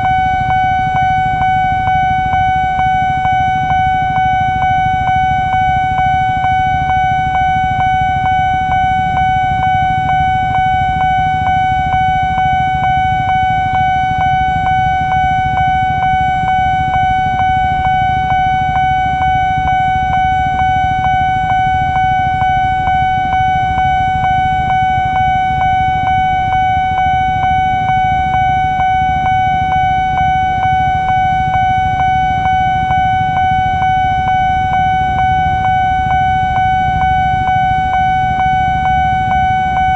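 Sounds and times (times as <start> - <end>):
crossing alarm electronic tone: 0.0 - 39.9.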